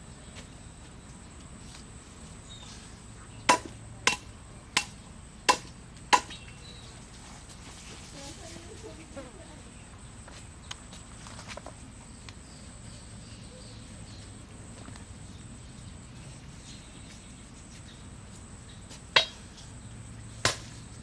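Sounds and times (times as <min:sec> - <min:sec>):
high insect or bird chirps: 0:00.0 - 0:07.1, 0:08.2 - 0:21.0
machete knocking wooden stake: 0:03.5 - 0:06.4, 0:20.4 - 0:20.8.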